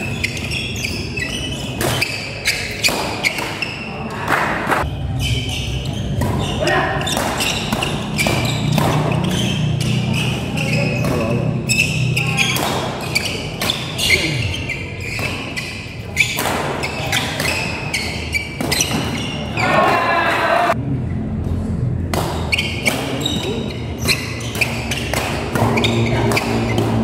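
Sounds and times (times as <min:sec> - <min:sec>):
shoe squeaks: 0:00.0 - 0:20.0, 0:22.4 - 0:27.0
racket striking shuttlecock: 0:24.0 - 0:27.0.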